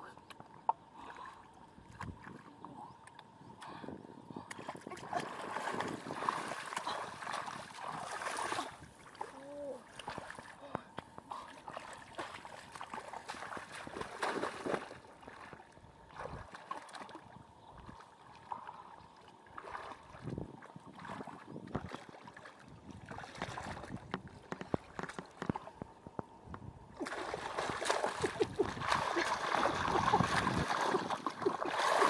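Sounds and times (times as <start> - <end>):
water splashing and trickling: 4.6 - 10.7, 11.3 - 25.8, 27.0 - 32.0.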